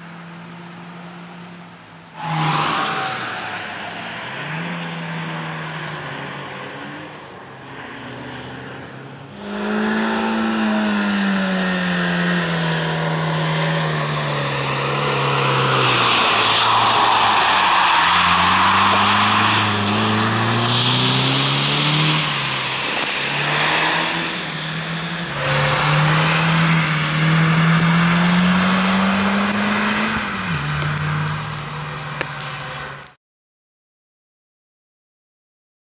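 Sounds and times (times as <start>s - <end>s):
car engine revving hard: 18.2s - 31.5s.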